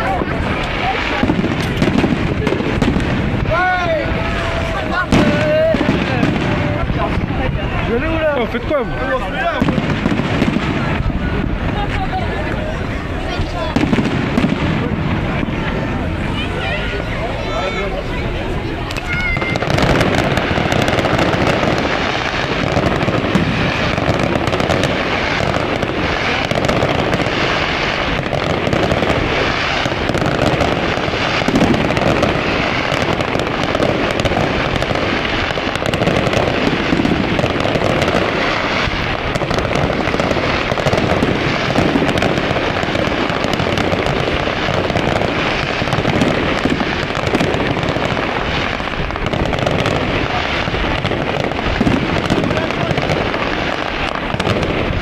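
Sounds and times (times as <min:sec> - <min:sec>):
fireworks shell bursts and crackle: 0:00.0 - 0:03.6, 0:18.8 - 0:55.0.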